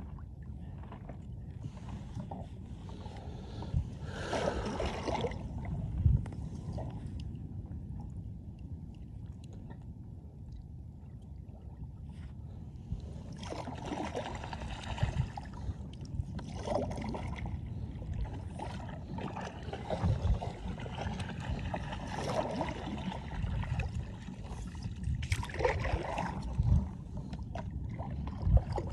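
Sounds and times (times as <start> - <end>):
low steady rumble: 0.0 - 28.9
paddle strokes splashing: 13.4 - 15.7, 18.3 - 26.8.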